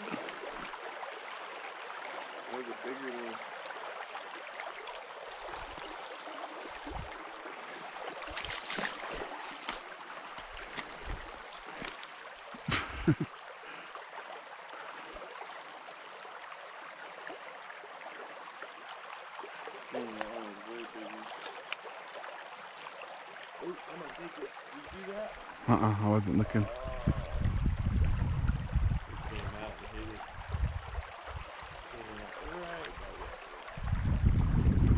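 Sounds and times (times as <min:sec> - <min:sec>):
creek running over gravel: 0:00.0 - 0:34.9.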